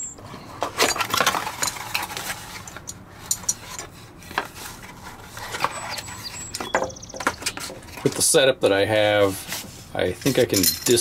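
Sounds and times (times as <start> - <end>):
cardboard scraping and rustling: 3.6 - 6.5, 9.0 - 10.5.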